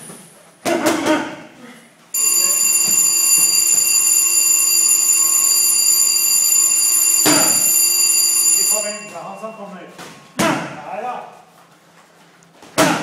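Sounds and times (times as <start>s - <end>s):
electric timer ringing: 2.2s - 9.9s.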